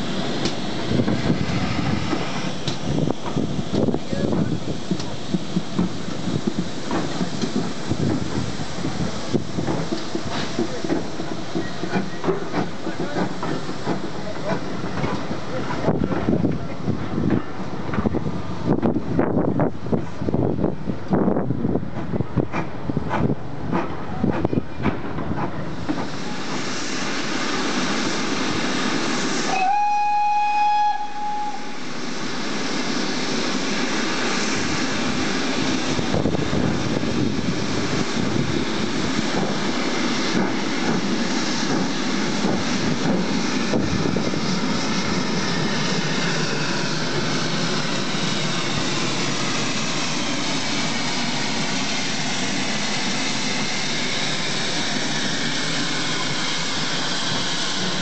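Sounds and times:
steam locomotive hiss and rumble: 0.0s - 58.0s
steam locomotive whistle: 29.4s - 31.9s.

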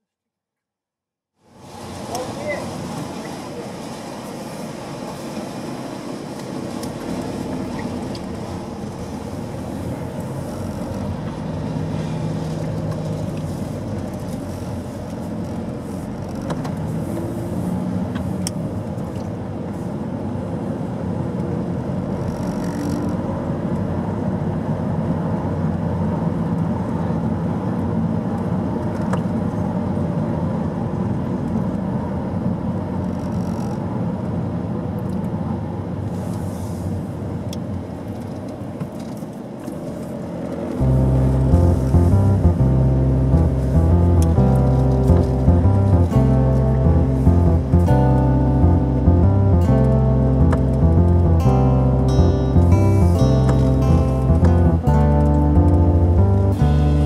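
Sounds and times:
car engine hum: 5.6s - 22.3s, 39.4s - 57.0s.

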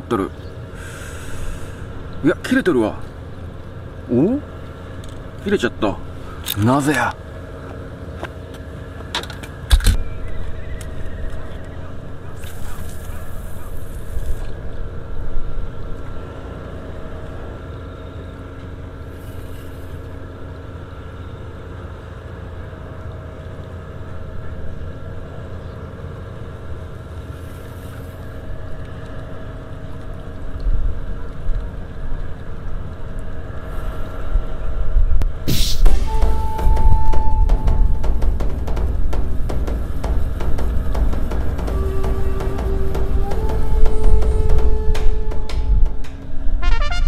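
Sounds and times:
machinery hum: 0.0s - 47.0s
wind rumble on microphone: 26.3s - 47.0s.

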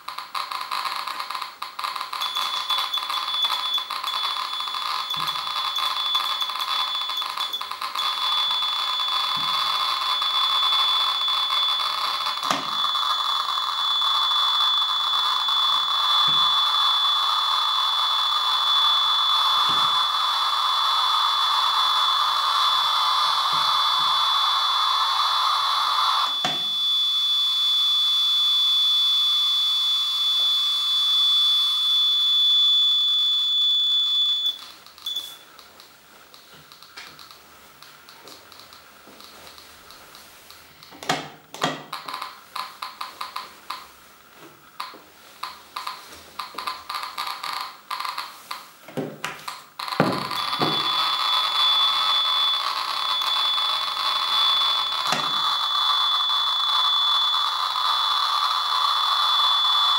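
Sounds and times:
geiger counter alarm tone: 0.0s - 35.7s, 38.1s - 43.9s, 44.8s - 48.6s, 49.5s - 59.9s
geiger counter crackle: 0.0s - 59.9s.

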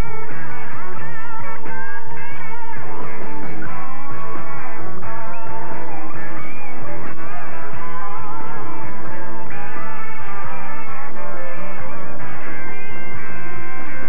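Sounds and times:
electric guitar lead lines: 0.0s - 14.0s
steady bass: 0.0s - 14.0s.

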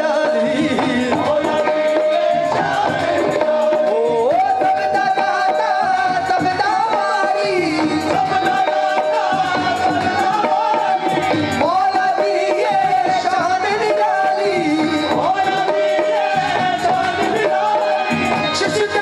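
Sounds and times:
harmonium melody: 0.0s - 19.0s
tabla drumming: 0.0s - 19.0s.

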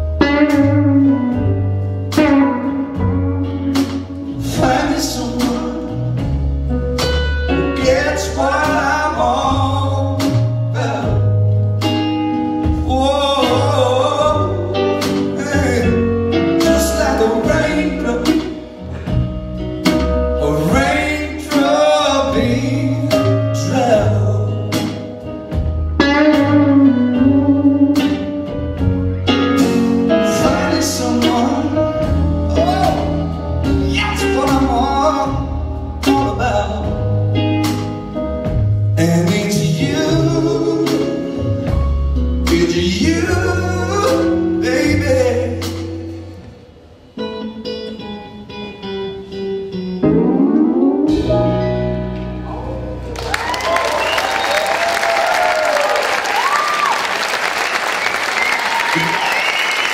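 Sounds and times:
live band playing: 0.0s - 59.9s
man singing wordless vocals: 4.4s - 6.4s, 7.6s - 11.4s, 12.7s - 18.8s, 20.4s - 25.1s, 30.2s - 37.3s, 38.9s - 41.8s, 42.4s - 46.2s.

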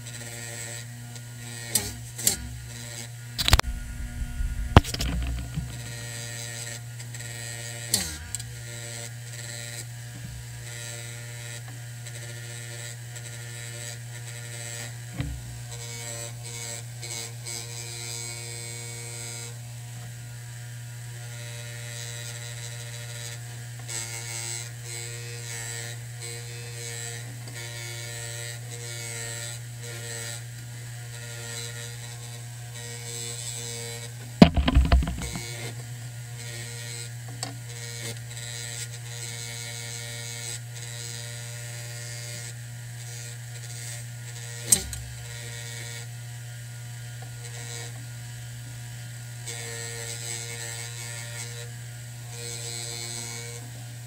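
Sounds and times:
short knock: 3.4s - 5.9s, 34.4s - 35.5s.

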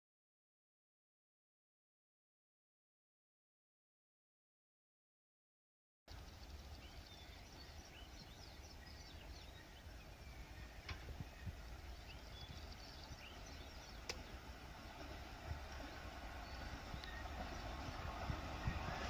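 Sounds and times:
birds chirping: 6.1s - 19.0s
train rumble: 6.1s - 19.0s
sharp clicks: 14.0s - 14.2s.

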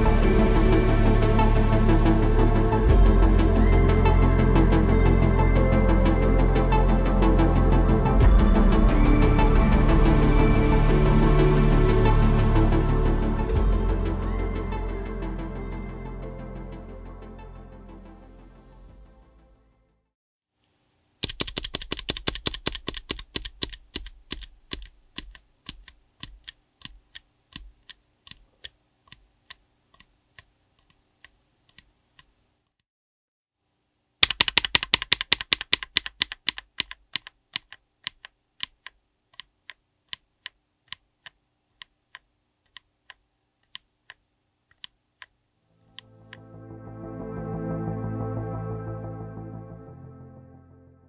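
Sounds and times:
mechanical keyboard switch clacks: 21.2s - 28.4s, 34.2s - 38.9s.

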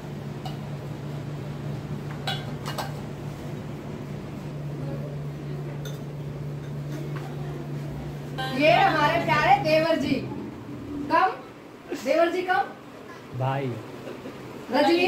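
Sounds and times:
steady low hum: 0.0s - 15.0s
spoons clinking on dishes: 2.2s - 3.0s, 5.8s - 7.0s.

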